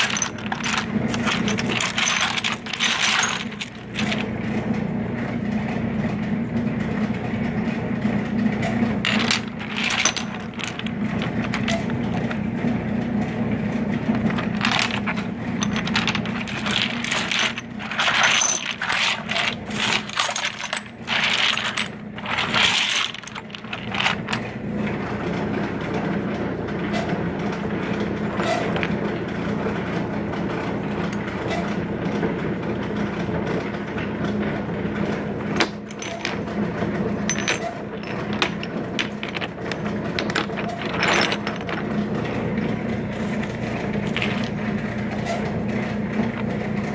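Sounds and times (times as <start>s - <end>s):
rocks clacking and scraping: 0.0s - 4.3s, 9.1s - 12.4s, 14.2s - 24.4s.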